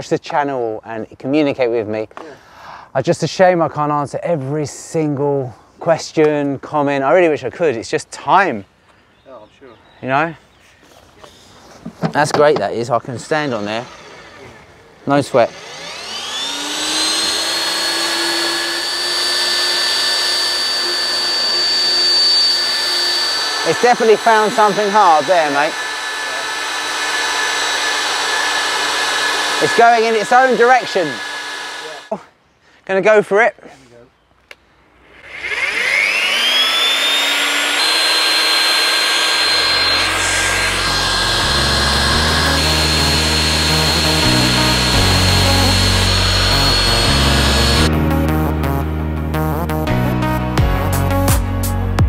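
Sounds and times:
electric motor whining: 12.0 - 32.2, 35.0 - 48.8
background music: 43.8 - 52.0.

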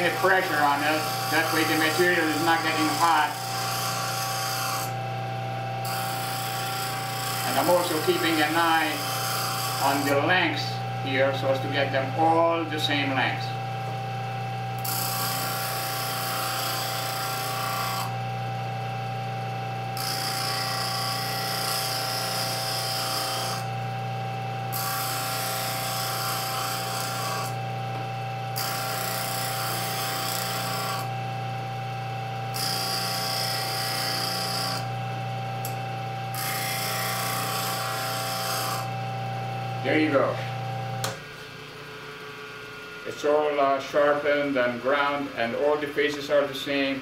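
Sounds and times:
steel rod rasping on grinding wheel: 0.0 - 5.0, 5.8 - 13.0, 14.8 - 18.1, 20.0 - 23.7, 24.7 - 27.6, 28.6 - 31.1, 32.5 - 34.9, 35.6 - 38.9
bench grinder humming: 0.0 - 46.4.

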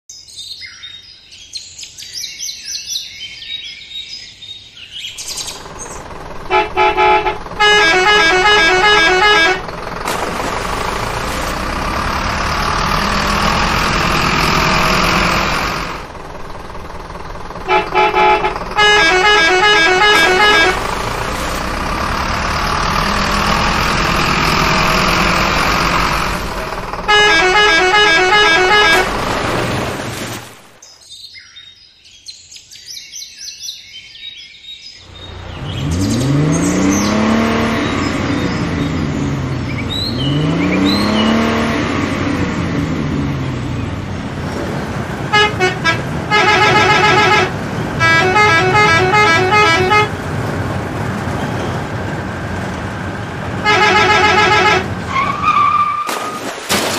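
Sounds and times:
birds chirping: 0.1 - 27.6, 30.8 - 41.6
vehicle engine noise: 5.2 - 30.8, 35.0 - 56.9
truck horn honks: 6.2 - 16.8, 17.4 - 29.4, 45.2 - 50.3, 53.5 - 56.1.

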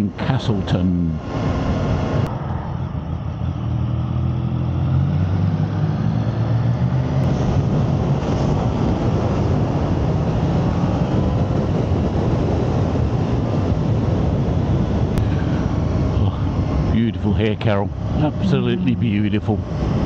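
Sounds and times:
wind rush and road noise: 0.0 - 20.0
motorcycle engine accelerating: 1.4 - 17.0.

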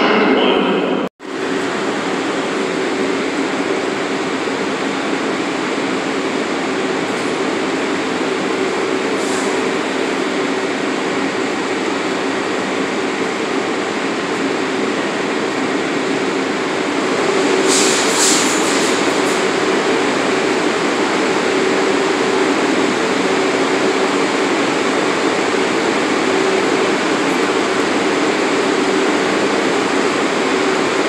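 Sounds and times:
continuous rushing noise: 0.0 - 31.0
train equipment humming: 0.0 - 31.0
short hisses: 17.7 - 19.0.

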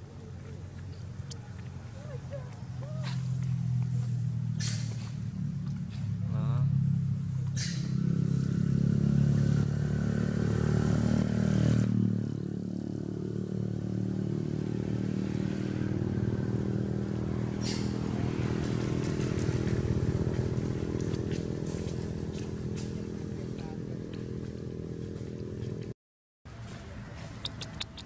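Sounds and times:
motorcycle engine running: 0.0 - 25.9.

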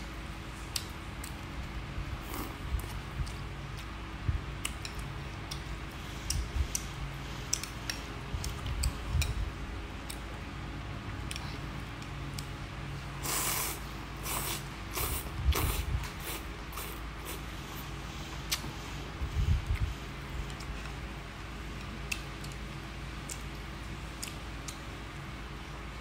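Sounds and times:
low steady hum: 0.0 - 26.0
loud noodle slurps: 13.2 - 17.4
wet chewing with mouth clicks: 23.2 - 24.8.

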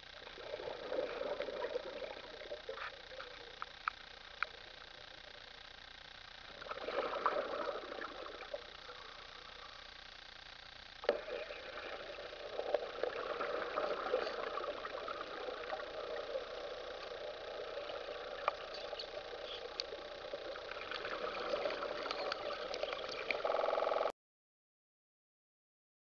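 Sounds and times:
underwater cutting torch crackling: 11.0 - 24.0.

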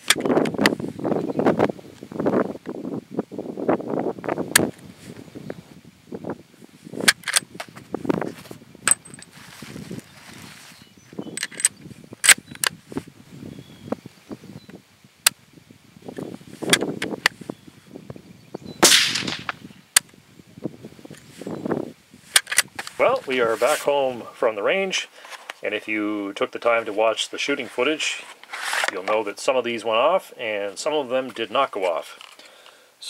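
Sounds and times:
rifle bolt metallic clicks: 7.1 - 7.5, 22.3 - 22.9.

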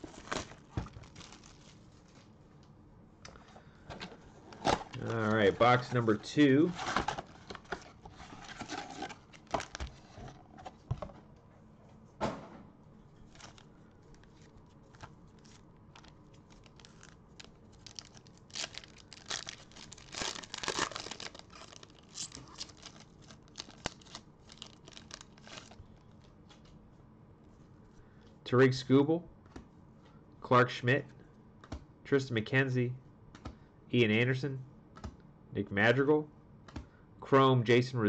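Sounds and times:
card pack wrappers crinkling and tearing: 0.0 - 2.3, 4.4 - 10.2, 13.3 - 26.7.

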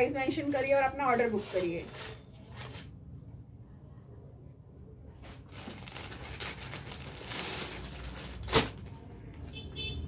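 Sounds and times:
plastic packet crinkling: 5.4 - 8.9.

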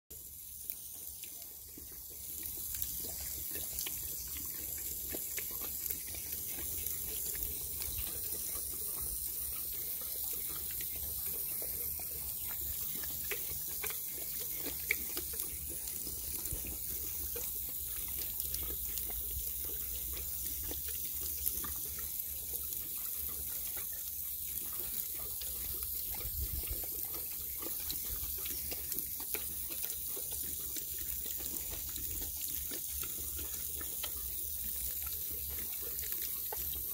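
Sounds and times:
water running from hose nozzle: 0.1 - 36.9
dog mouth wet clicks: 0.5 - 36.9.

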